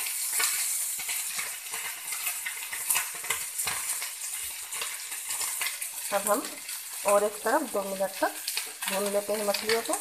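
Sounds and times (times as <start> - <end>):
spatula scraping a pan: 0.0 - 7.1
fish frying in hot oil: 0.0 - 10.0.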